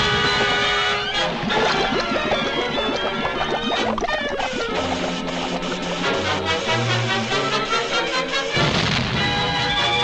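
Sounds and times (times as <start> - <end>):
orchestral cartoon music: 0.0 - 10.0.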